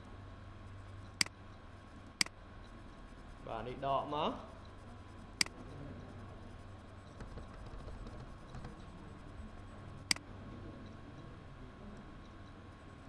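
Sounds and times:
faint hum with high tone: 0:00.0 - 0:13.0.

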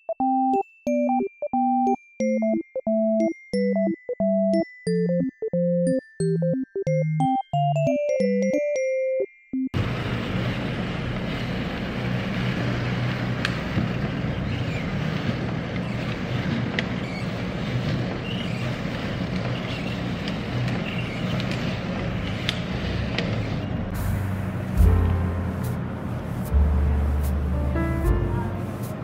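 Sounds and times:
synth notes: 0:00.0 - 0:09.8, 0:24.0 - 0:29.0
low rumble and hiss: 0:23.8 - 0:29.0.

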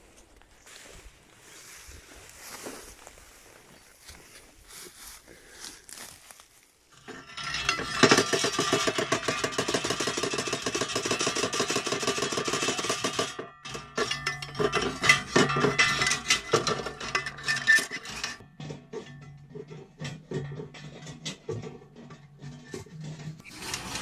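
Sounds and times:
metal gate rattling: 0:07.0 - 0:24.0.

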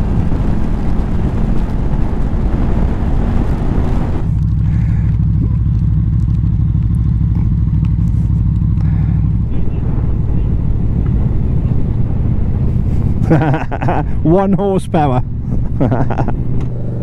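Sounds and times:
wind rush on microphone: 0:00.0 - 0:05.6, 0:08.9 - 0:14.2
motorcycle engine running: 0:00.0 - 0:17.0.

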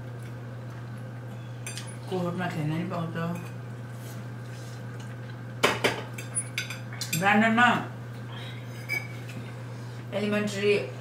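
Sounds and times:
forks clinking on plates: 0:01.6 - 0:02.0, 0:05.6 - 0:07.2.

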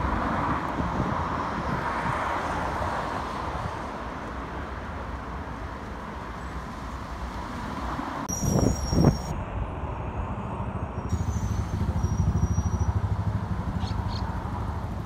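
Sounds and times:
wind buffeting microphone: 0:00.0 - 0:04.0, 0:08.3 - 0:15.0
road traffic rumble: 0:00.0 - 0:15.0.

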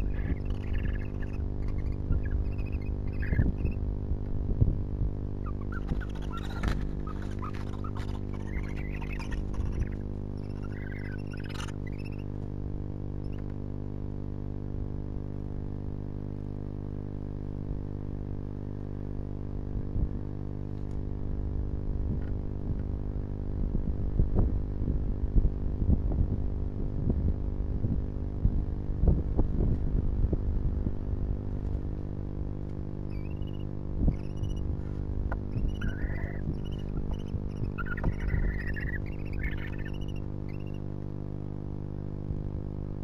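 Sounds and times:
high squeaky chirps: 0:00.0 - 0:03.8, 0:05.4 - 0:12.3, 0:33.1 - 0:34.6, 0:35.5 - 0:40.8
low hum: 0:00.0 - 0:43.0
owls scratching and rustling: 0:05.4 - 0:12.3, 0:33.1 - 0:40.8.

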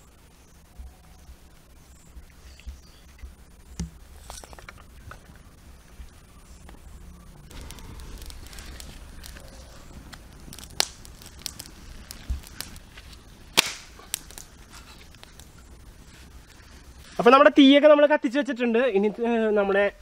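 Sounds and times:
wood fire crackling: 0:00.0 - 0:20.0
sharp wood snaps: 0:07.5 - 0:15.5.

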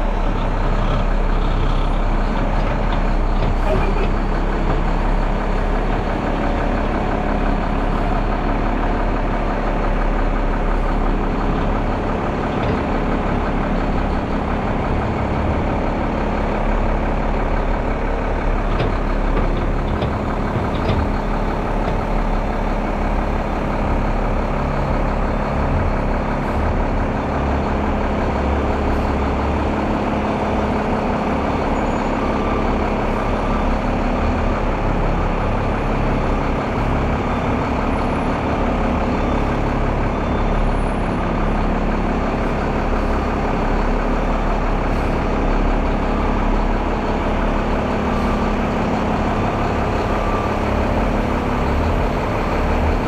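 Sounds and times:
diesel truck engine running: 0:00.0 - 0:53.0.

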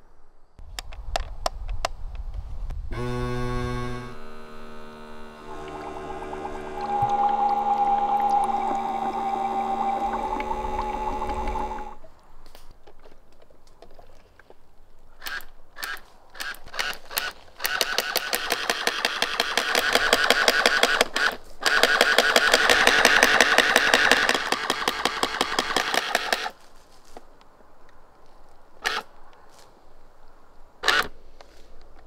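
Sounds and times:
electric water gun pump buzzing: 0:02.9 - 0:12.0, 0:17.2 - 0:26.5.

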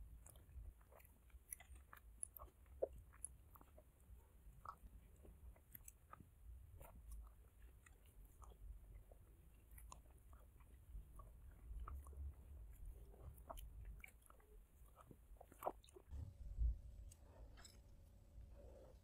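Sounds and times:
wet chewing and mouth noises: 0:00.0 - 0:16.3, 0:16.9 - 0:19.0.

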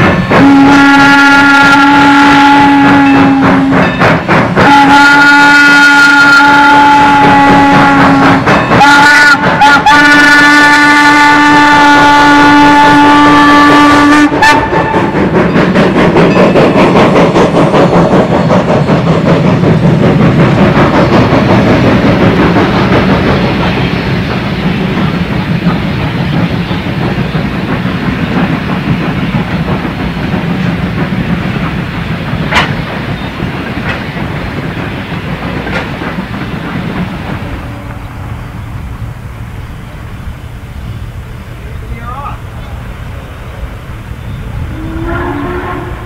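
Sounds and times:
train wheels clicking over rail joints: 0:00.0 - 0:46.0
steam locomotive whistle: 0:00.3 - 0:04.0, 0:04.6 - 0:15.3, 0:44.3 - 0:46.0.

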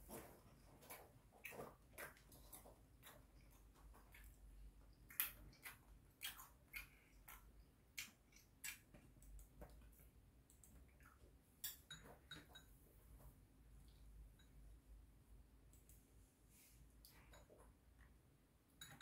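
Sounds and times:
chewing: 0:00.1 - 0:11.3
chopsticks and spoon clicking on bowls: 0:11.6 - 0:12.7, 0:18.8 - 0:19.0.

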